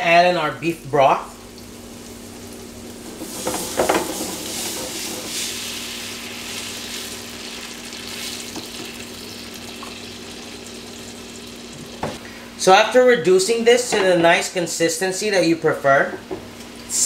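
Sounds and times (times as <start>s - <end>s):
pan sizzling: 1.4s - 12.2s.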